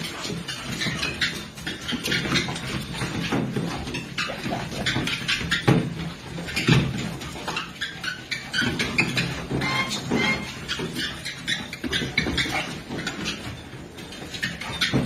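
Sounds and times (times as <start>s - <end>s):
dog paws thumping on treadmill: 0.0s - 15.0s
treadmill low hum: 0.0s - 15.0s.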